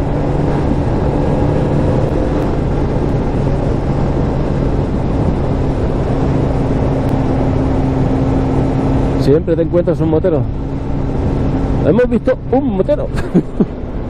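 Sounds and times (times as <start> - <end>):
motorcycle engine cruising: 0.0 - 14.0
wind noise on microphone: 0.0 - 14.0.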